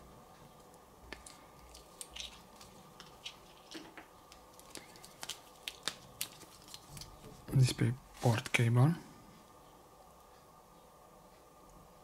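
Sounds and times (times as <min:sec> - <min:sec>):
cable packaging crinkling: 0:01.1 - 0:07.4.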